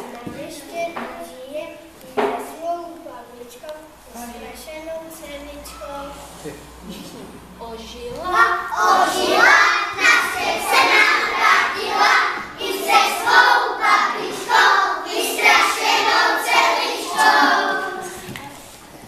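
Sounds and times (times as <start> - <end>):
young children singing: 7.9 - 18.6.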